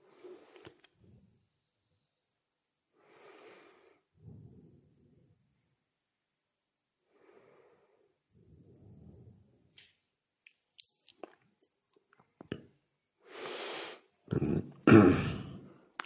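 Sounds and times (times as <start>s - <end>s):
person breathing: 0.0s - 1.4s, 2.9s - 5.6s, 7.0s - 9.7s, 13.2s - 14.1s.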